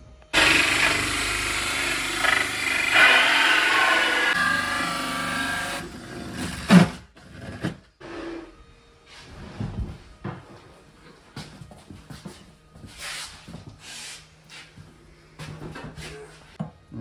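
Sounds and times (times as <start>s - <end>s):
cordless drill motor whine: 0.4s - 4.9s.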